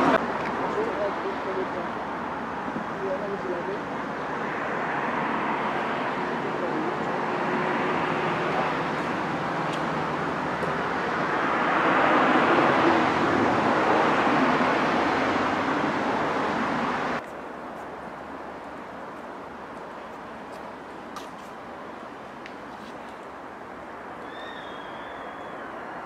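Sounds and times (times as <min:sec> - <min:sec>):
car passing: 0:00.0 - 0:17.2, 0:18.2 - 0:26.0.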